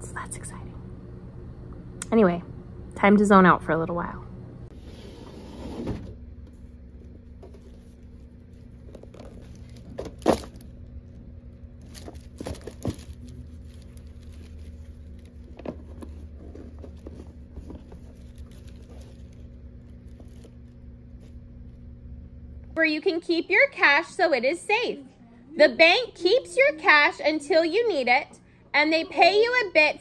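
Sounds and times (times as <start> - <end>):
low steady hum: 0.0 - 30.0
foil rustling: 6.6 - 21.8.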